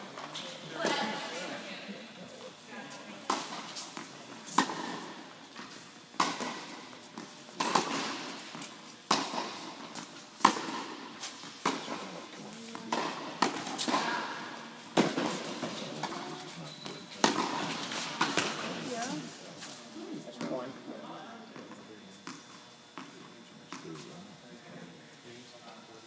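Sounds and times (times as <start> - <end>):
tennis balls struck by rackets: 3.3 - 12.0, 12.7 - 16.5, 17.2 - 18.9.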